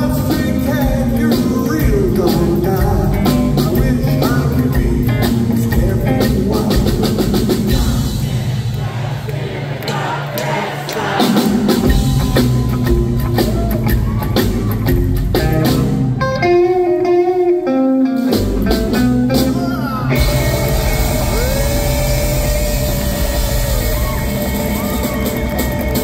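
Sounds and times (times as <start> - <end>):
electric guitar: 0.0 - 7.8, 11.8 - 26.0
rockabilly band playing live: 0.0 - 8.5, 11.0 - 26.0.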